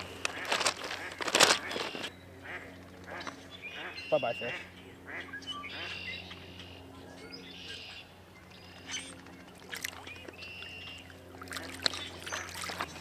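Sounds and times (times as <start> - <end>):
birds singing: 1.6 - 13.0
hands splashing shallow water: 11.3 - 13.0.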